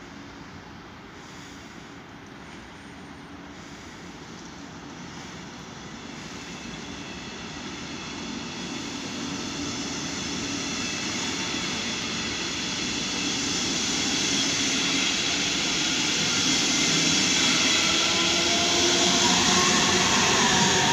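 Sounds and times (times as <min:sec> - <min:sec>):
passenger train rolling past: 0:00.0 - 0:20.9
high whine: 0:04.7 - 0:20.9.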